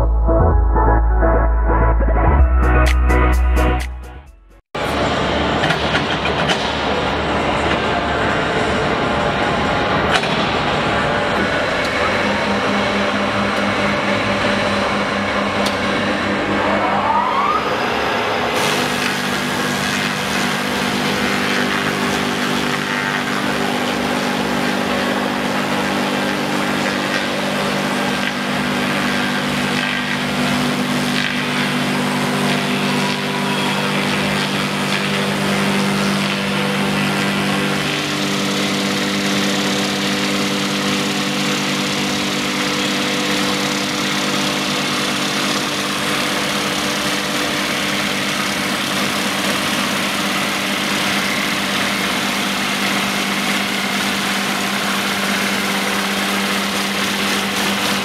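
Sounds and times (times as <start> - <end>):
rising machine whine: 0.0 - 58.0
electric motor hum: 9.1 - 58.0
rotary cutter planing log: 17.8 - 58.0.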